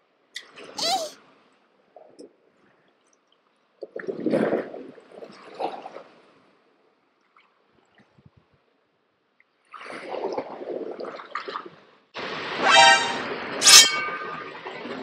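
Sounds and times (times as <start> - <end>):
seawater sloshing and gurgling: 3.9 - 6.2.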